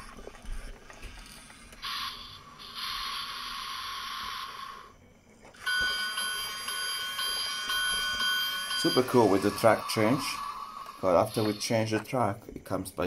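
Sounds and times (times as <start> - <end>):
toy train high whine: 1.8 - 5.0, 5.6 - 12.2.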